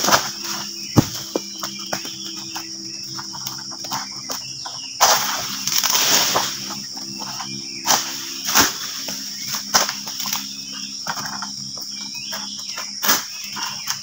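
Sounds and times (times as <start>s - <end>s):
sharp knocks: 0.9s - 2.1s
palm fronds tearing and rustling: 5.0s - 11.4s, 12.8s - 14.0s.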